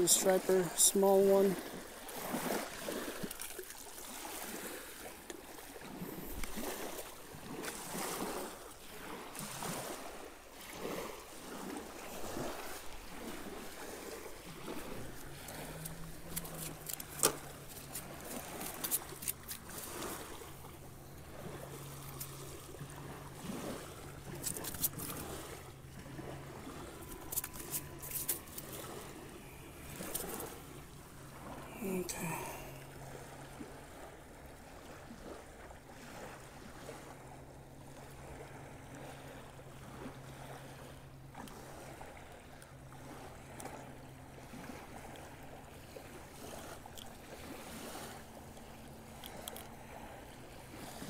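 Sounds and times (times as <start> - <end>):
waves lapping against rocks: 0.0 - 51.0
clicks and taps of fishing tackle: 15.2 - 19.6, 24.4 - 25.2, 27.1 - 28.8, 46.9 - 47.1, 49.2 - 49.7.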